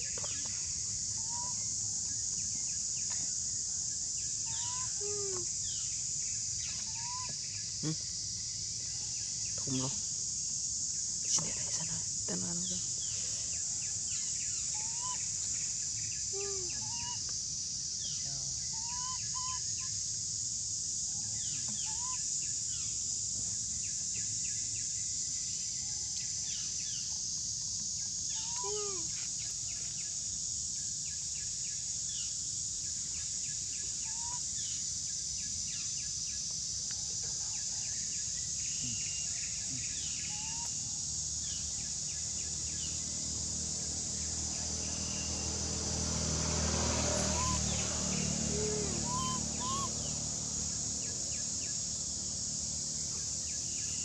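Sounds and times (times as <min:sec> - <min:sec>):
high-pitched insect drone: 0:00.0 - 0:36.6, 0:38.1 - 0:54.0
chirping animal calls: 0:47.3 - 0:50.2.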